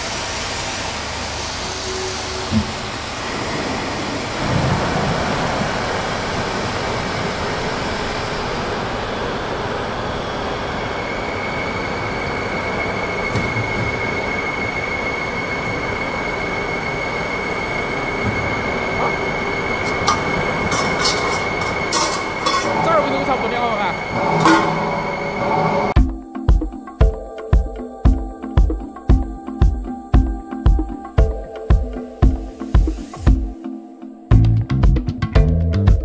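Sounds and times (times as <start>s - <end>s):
high machine whine: 0.0s - 33.8s
sheet-metal folding machine running: 2.3s - 26.0s.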